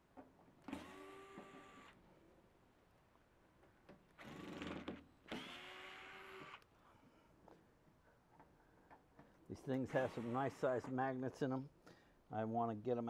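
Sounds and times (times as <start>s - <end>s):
electric screwdriver whirring: 0.7s - 2.0s, 4.2s - 6.6s.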